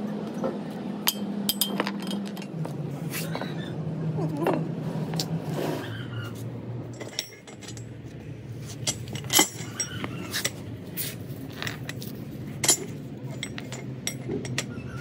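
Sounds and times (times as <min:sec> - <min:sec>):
steady low hum: 0:00.0 - 0:15.0
metal clinks and taps: 0:01.0 - 0:02.6, 0:11.6 - 0:14.7.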